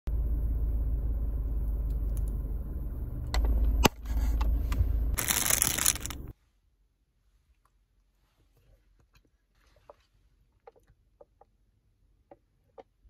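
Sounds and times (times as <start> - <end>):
low rumble inside a car: 0.1 - 6.3
snack bag crinkling: 5.2 - 6.3.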